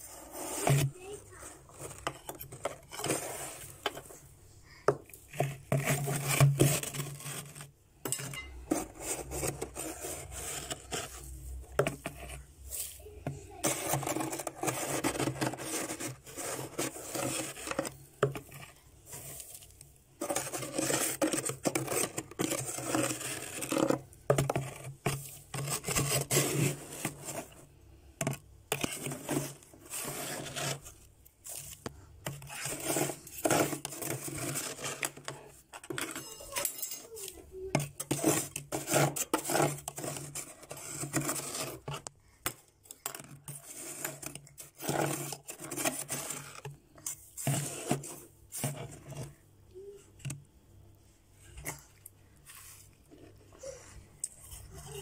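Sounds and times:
spoon scraping frost: 0.0s - 50.4s, 51.4s - 55.0s
frost scooped into bowl: 28.8s - 35.3s, 51.4s - 53.4s.

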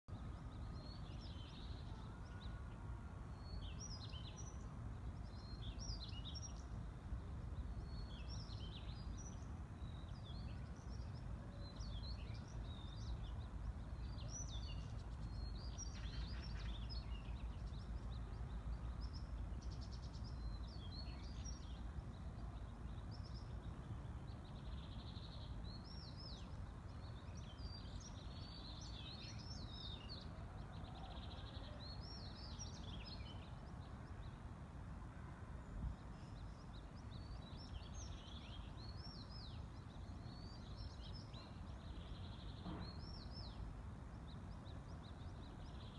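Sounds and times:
small birds chirping: 36.0s - 45.9s.

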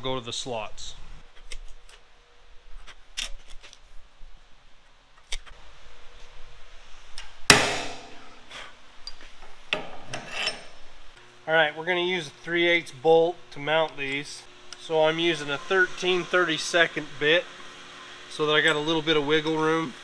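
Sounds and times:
metallic strike of center punch: 7.5s - 8.4s.

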